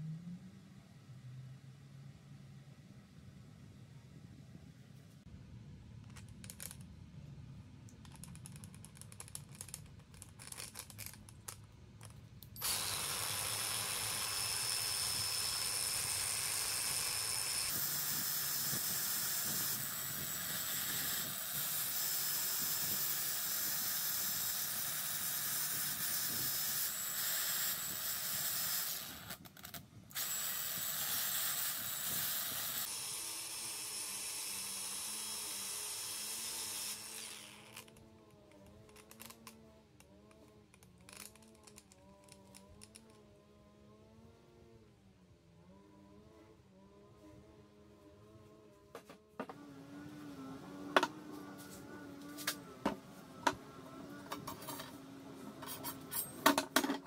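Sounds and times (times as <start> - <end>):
angle grinder running with high whine: 12.6 - 29.4, 30.1 - 38.0.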